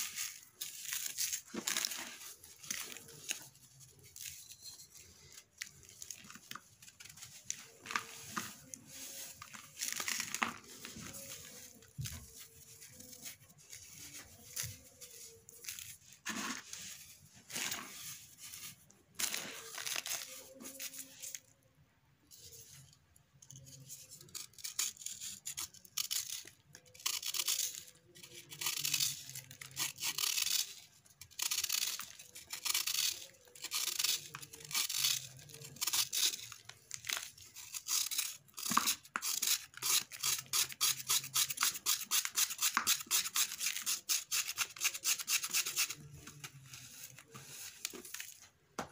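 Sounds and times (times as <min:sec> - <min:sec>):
knife scraping sand ball: 0:07.6 - 0:21.1.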